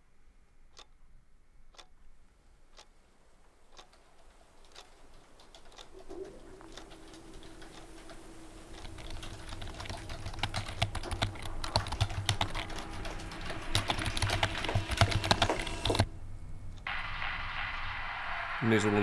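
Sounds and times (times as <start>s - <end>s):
low steady hum: 0.0s - 19.0s
dense irregular clicking: 2.7s - 16.1s.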